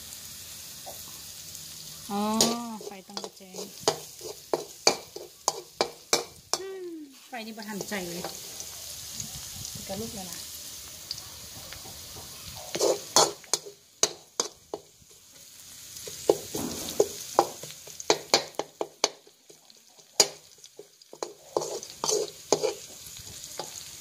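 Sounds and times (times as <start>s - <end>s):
faint sizzle: 0.0s - 24.0s
metal spatula scraping a wok: 2.3s - 9.2s, 12.4s - 15.4s, 16.0s - 19.0s, 20.1s - 23.9s.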